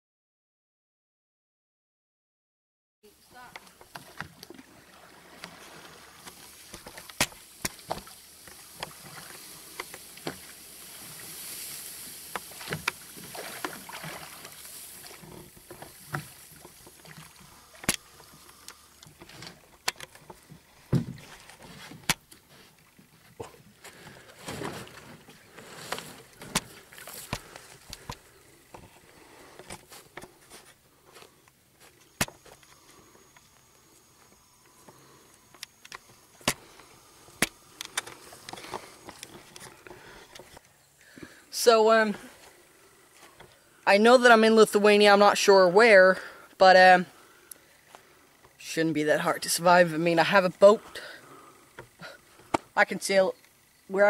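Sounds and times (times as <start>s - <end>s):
oars splashing through water: 3.3s - 41.2s.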